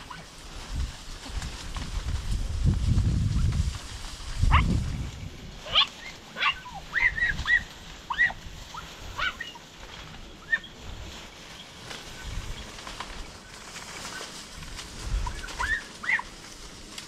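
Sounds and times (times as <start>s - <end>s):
dogs yelping: 4.5s - 4.8s, 5.6s - 9.8s, 10.4s - 10.8s, 15.2s - 16.4s.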